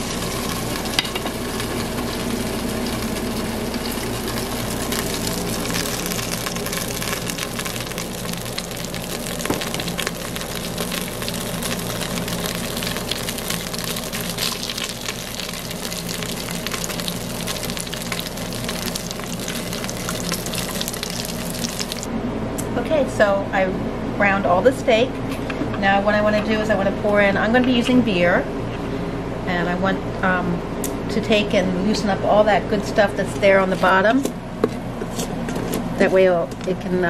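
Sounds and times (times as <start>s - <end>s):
meat sizzling in hot oil: 0.0s - 22.1s.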